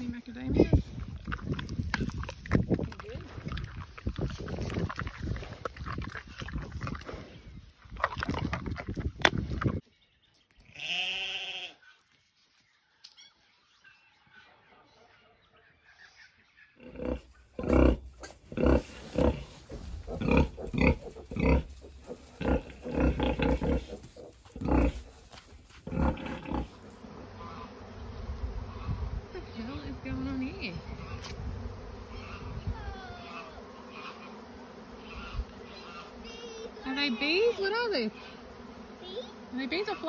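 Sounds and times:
sow grunting: 0:16.8 - 0:40.0
drawn-out pitched call: 0:17.8 - 0:25.2, 0:25.9 - 0:40.0.

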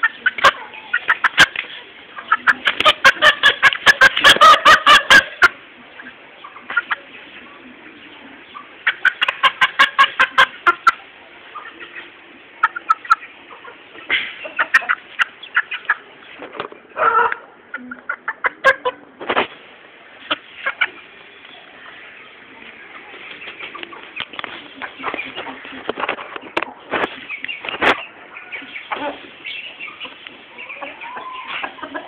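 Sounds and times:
chickens clucking: 0:00.0 - 0:32.0.

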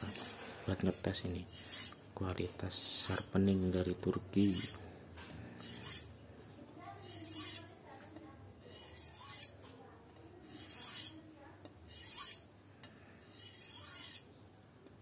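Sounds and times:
knife swishing on sharpening steel: 0:00.0 - 0:00.4, 0:01.5 - 0:02.0, 0:04.4 - 0:04.8, 0:05.6 - 0:06.1, 0:07.0 - 0:07.7, 0:08.6 - 0:09.5, 0:10.4 - 0:11.2, 0:11.8 - 0:12.4, 0:13.2 - 0:14.3.

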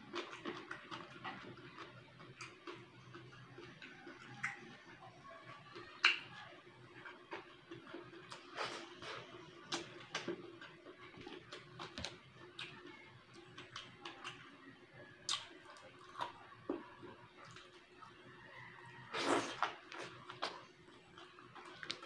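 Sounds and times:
man chewing and lip-smacking: 0:00.0 - 0:05.1, 0:06.9 - 0:12.8, 0:15.3 - 0:16.8, 0:19.1 - 0:22.0.

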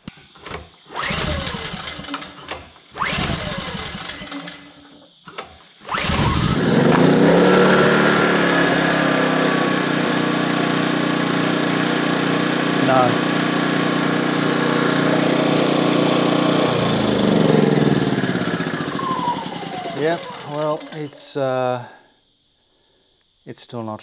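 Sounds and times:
recoil starter pulls: 0:00.3 - 0:21.3
generator engine running: 0:01.0 - 0:02.3, 0:03.0 - 0:04.6, 0:05.9 - 0:21.4.

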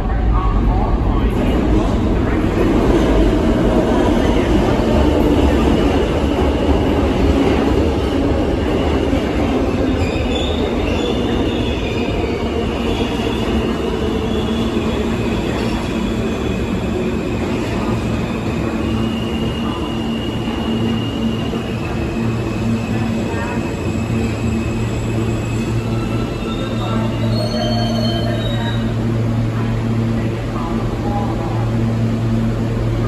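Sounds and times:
subway train wheels rumbling: 0:00.0 - 0:33.0.

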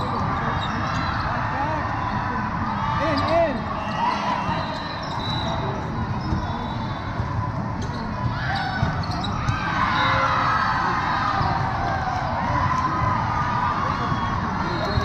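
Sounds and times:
crowd chatter: 0:00.0 - 0:15.0
players and spectators shouting: 0:00.0 - 0:15.0
volleyballs struck and bouncing: 0:07.1 - 0:09.8.

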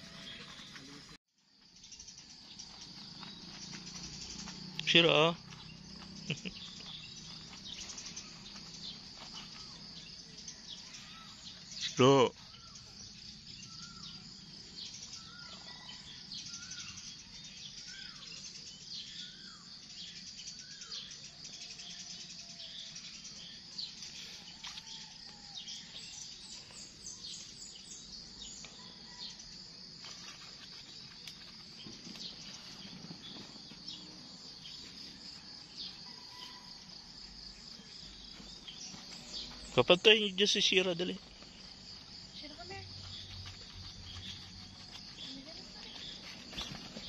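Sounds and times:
high insect drone: 0:00.0 - 0:47.0
birds calling: 0:01.8 - 0:29.2, 0:37.6 - 0:47.0.

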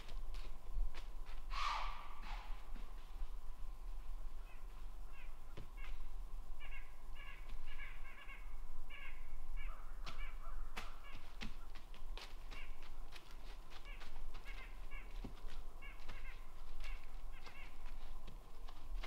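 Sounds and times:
bird giving harsh caw-like calls: 0:01.5 - 0:02.6, 0:06.6 - 0:11.8, 0:12.5 - 0:12.9, 0:13.8 - 0:15.2, 0:15.8 - 0:18.0.

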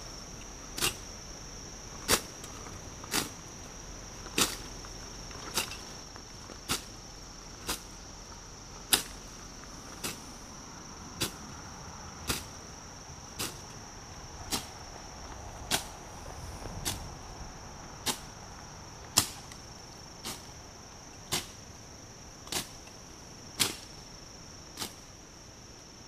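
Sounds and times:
blade swishing through weeds: 0:09.9 - 0:10.3, 0:13.4 - 0:13.8, 0:14.5 - 0:14.8.

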